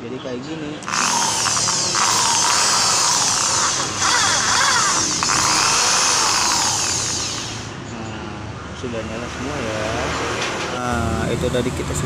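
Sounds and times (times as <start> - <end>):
electric drill motor whine: 0.8 - 7.8.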